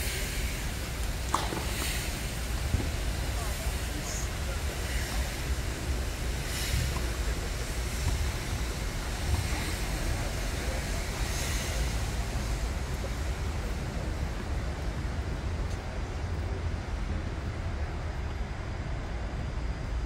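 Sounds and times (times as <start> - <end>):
faint hiss: 0.0 - 14.9.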